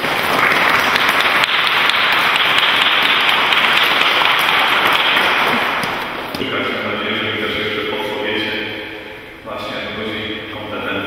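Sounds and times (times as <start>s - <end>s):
congregation applauding: 0.0s - 6.4s.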